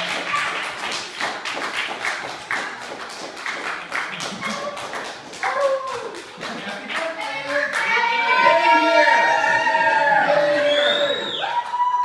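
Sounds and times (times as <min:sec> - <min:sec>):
people clapping: 0:00.0 - 0:12.0
people calling out excitedly: 0:07.3 - 0:11.6.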